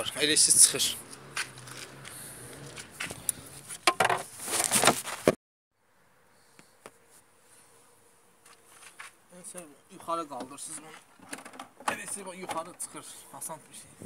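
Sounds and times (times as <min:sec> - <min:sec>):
rustling and scraping handling noise: 0:02.6 - 0:05.4, 0:08.4 - 0:13.1.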